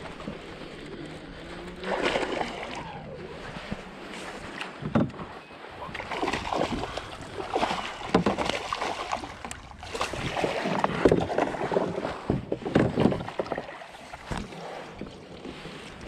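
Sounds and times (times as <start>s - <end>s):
fish splashing at the surface: 1.8s - 2.9s, 6.0s - 11.9s
net swept through water: 1.8s - 3.1s.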